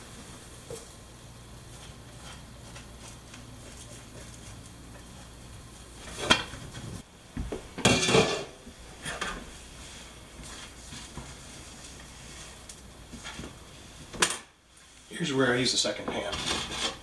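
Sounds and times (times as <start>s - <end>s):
cookware clattering on stovetop: 7.8s - 8.6s.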